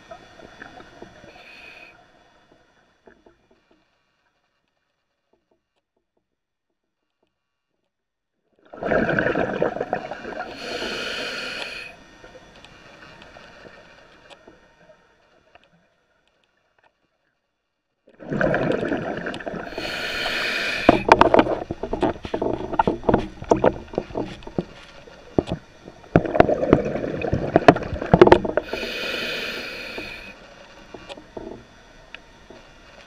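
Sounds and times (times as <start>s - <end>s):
regulator inhale hiss: 0.6s - 2.4s, 10.2s - 15.0s, 19.4s - 33.0s
crackling exhaled bubbles: 8.7s - 14.1s, 18.1s - 32.0s.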